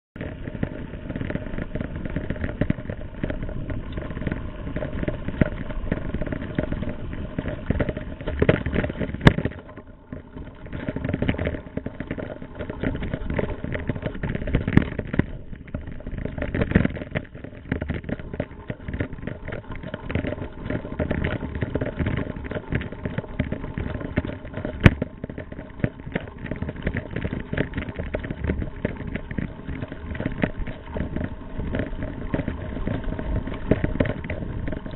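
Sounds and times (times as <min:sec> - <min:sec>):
bike rattling: 0:00.2 - 0:34.9
wind and tyre noise: 0:00.2 - 0:34.9.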